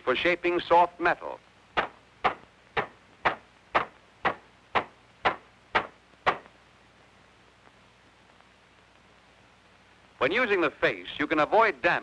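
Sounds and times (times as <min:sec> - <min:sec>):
hammer tapping sheet metal: 0:01.8 - 0:06.5.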